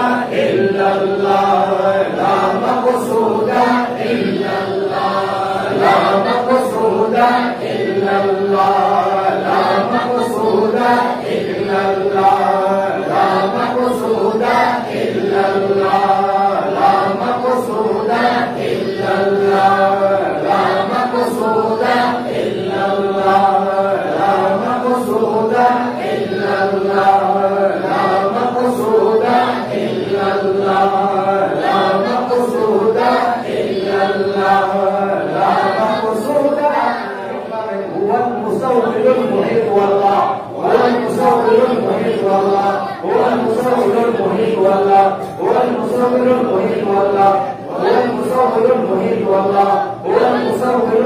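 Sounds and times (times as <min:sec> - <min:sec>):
men chanting in unison: 0:00.0 - 0:51.0.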